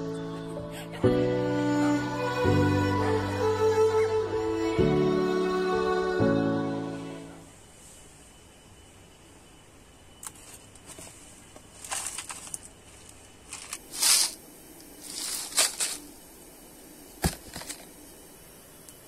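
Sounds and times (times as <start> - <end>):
rice grains rattling: 11.7 - 16.2.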